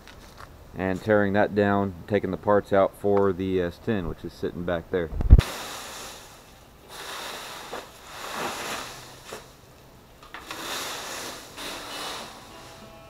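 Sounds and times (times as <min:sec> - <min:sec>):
rake sweeping leaves on concrete: 0:05.4 - 0:09.8, 0:10.4 - 0:13.0.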